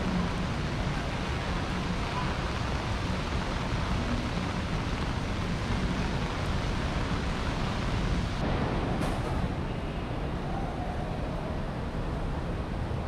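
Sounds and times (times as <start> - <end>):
steady rain hiss: 0.0 - 10.4.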